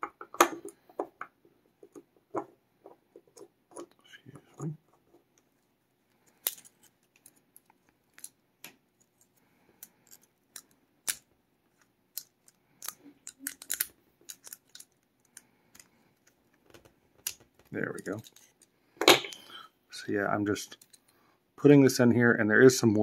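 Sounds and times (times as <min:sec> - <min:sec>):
small metal clicks: 0:12.1 - 0:18.7
pick scraping in padlock: 0:12.2 - 0:15.9.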